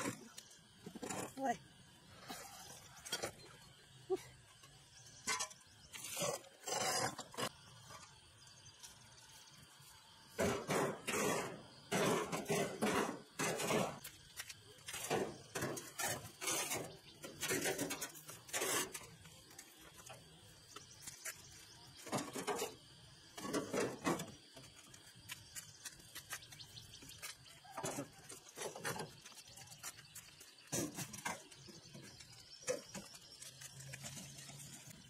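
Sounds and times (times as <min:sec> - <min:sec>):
metal parts clanking on cart: 0:05.2 - 0:06.3.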